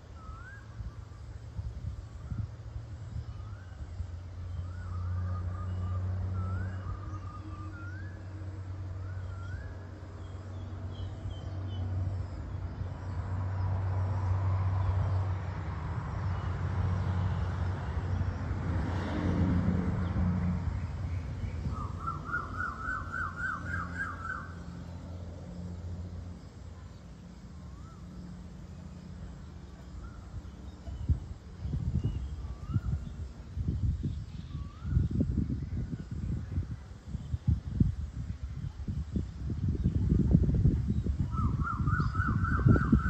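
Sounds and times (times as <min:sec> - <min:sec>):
passing vehicle engine: 0:01.3 - 0:34.2
birds chirping: 0:20.0 - 0:25.4.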